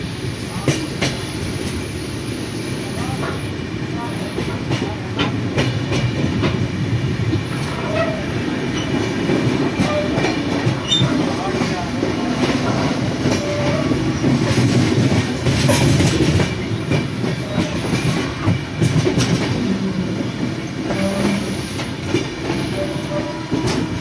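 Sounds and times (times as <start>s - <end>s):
train wheels rumbling on track: 0.0s - 24.0s.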